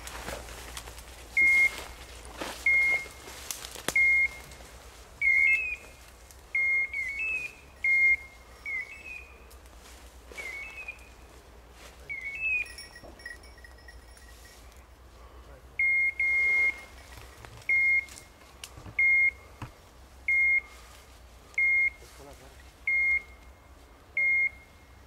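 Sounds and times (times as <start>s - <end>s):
beeper collar short high beeps: 1.4s - 2.0s, 2.6s - 3.3s, 4.0s - 4.5s, 5.2s - 5.9s, 6.6s - 9.4s, 12.0s - 14.6s, 15.8s - 18.2s, 19.0s - 19.5s, 22.9s - 23.4s, 24.2s - 25.0s.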